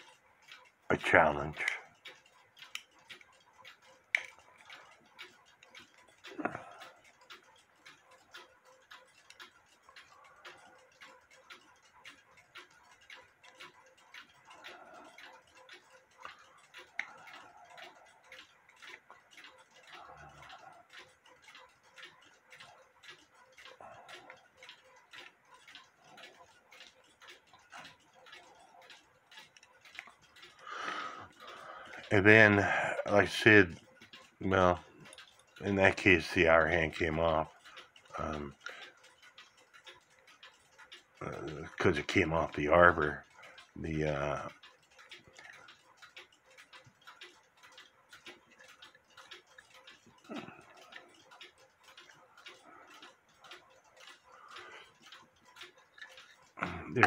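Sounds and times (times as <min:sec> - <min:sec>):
clock ticking: 0:00.0 - 0:57.0
small metal tool clicking: 0:02.6 - 0:03.3, 0:04.1 - 0:04.8, 0:15.7 - 0:17.4.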